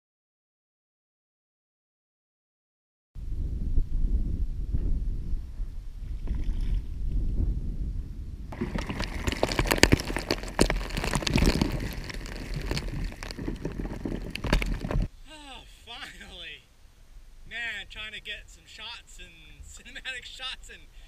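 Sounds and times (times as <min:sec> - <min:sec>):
low rumble of water: 0:03.3 - 0:15.1
fish spattering and clicking: 0:08.6 - 0:15.1.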